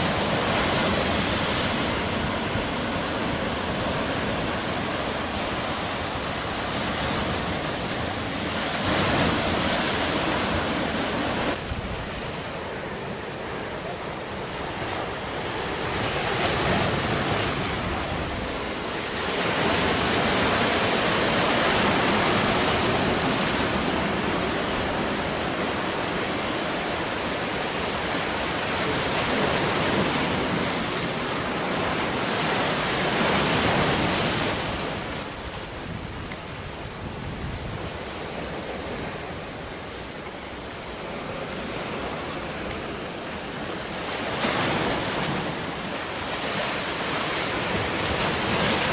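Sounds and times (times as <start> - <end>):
surf breaking against rocks: 41.0 - 48.9.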